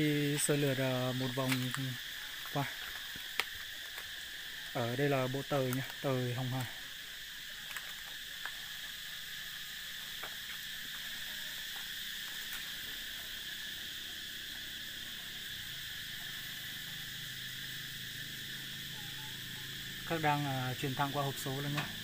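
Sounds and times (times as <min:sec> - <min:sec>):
high-pitched insect chorus: 0:00.0 - 0:22.0.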